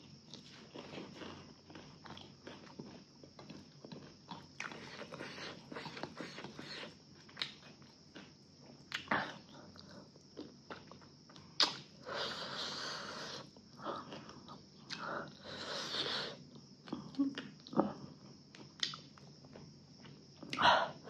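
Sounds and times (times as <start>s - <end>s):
person chewing food: 0.1s - 15.8s
wet mouth smacks: 11.6s - 11.9s.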